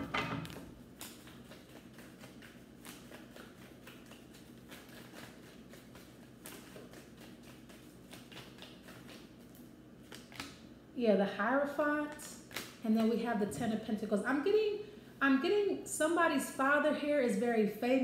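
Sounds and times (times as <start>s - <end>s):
cards being shuffled: 0.9s - 10.6s.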